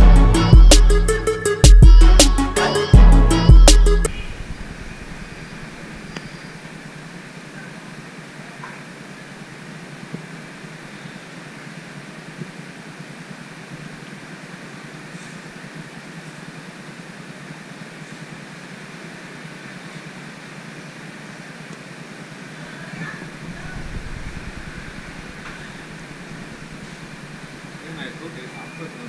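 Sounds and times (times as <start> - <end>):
low rumble: 4.1 - 6.6, 23.3 - 27.7
mechanical whir and hiss: 4.1 - 7.4, 9.0 - 29.0.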